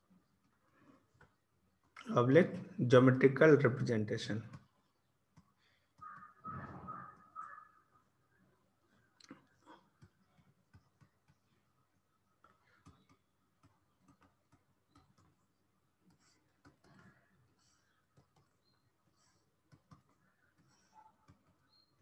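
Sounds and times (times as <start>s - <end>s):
stylus tapping on tablet: 4.5s - 6.4s, 9.9s - 11.6s, 12.4s - 17.2s, 17.9s - 22.0s.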